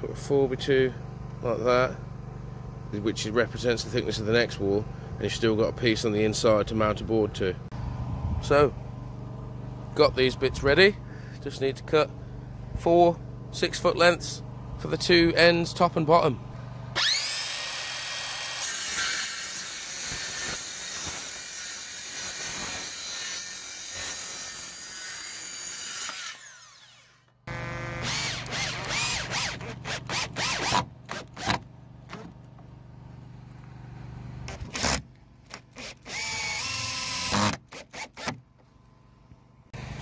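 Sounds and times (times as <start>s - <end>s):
circular saw cutting wood: 16.9s - 31.6s, 34.4s - 38.4s
drill driving screws: 17.0s - 32.2s, 34.5s - 38.4s.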